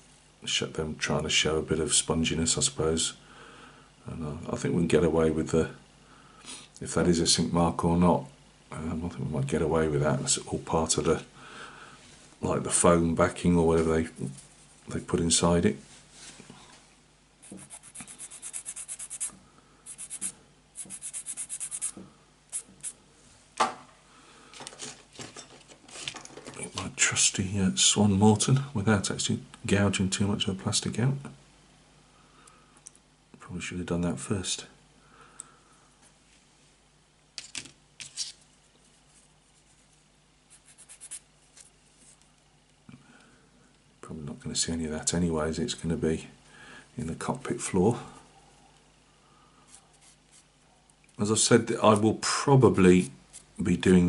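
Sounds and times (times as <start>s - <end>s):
sanding stick rubbing plastic: 17.4s - 19.3s, 19.9s - 22.9s, 40.5s - 41.2s.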